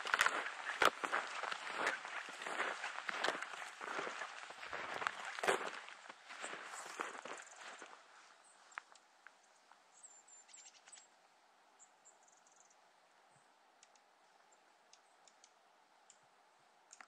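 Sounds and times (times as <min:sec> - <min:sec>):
faint outdoor hiss: 0:00.0 - 0:17.0
faint ticks: 0:13.8 - 0:17.0.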